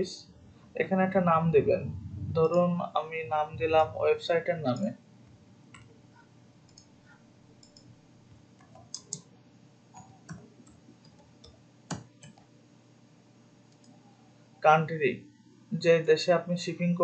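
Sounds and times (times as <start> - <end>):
computer keyboard and mouse clicks: 7.6 - 7.9, 8.6 - 9.3, 10.0 - 12.5.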